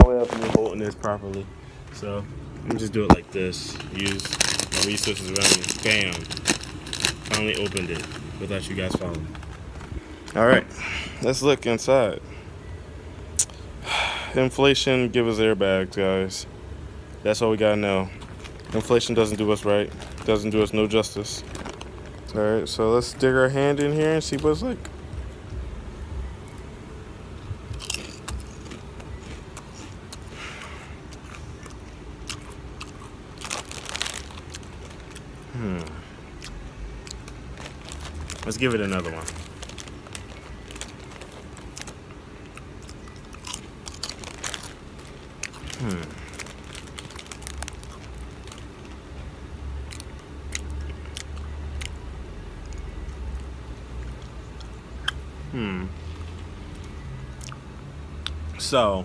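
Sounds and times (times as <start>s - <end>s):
low steady rumble: 0.0s - 59.0s
person chewing crunchy chip: 3.6s - 9.9s, 27.7s - 49.2s, 49.8s - 57.6s.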